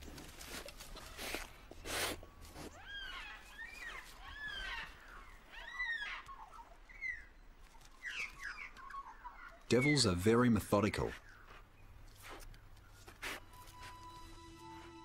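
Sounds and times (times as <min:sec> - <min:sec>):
rustling in dry straw: 0:00.0 - 0:05.4, 0:12.0 - 0:14.3
animal chirping calls: 0:02.7 - 0:10.2.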